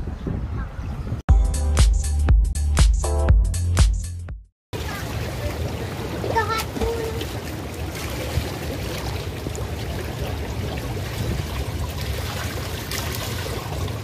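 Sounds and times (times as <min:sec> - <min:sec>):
hot tub water churning and bubbling: 0:04.7 - 0:14.0.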